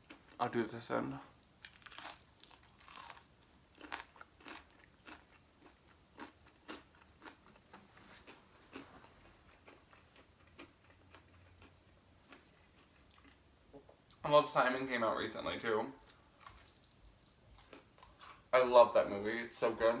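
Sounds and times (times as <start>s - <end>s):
chewing crispy fried chicken: 1.3s - 13.4s, 16.0s - 18.5s.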